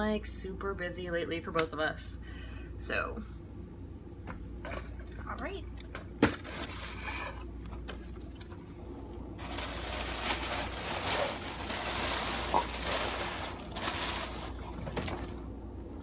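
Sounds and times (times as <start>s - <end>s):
packaging rustling: 9.4s - 15.3s.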